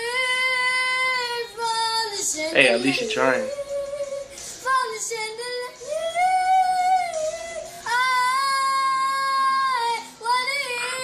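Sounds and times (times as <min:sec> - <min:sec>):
girl singing high notes: 0:02.4 - 0:11.0.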